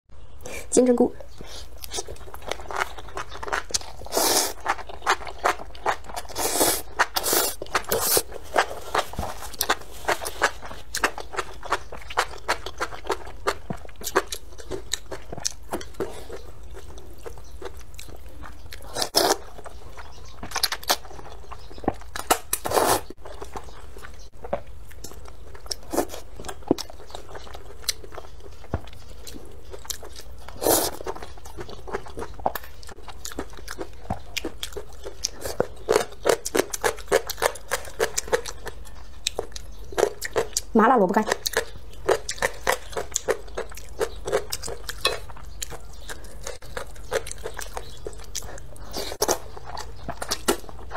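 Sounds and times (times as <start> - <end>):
chewing and mouth sounds: 1.2 - 50.9
slurping noodles: 4.0 - 4.8, 6.2 - 10.6, 18.9 - 19.4, 22.6 - 23.1, 30.6 - 31.0.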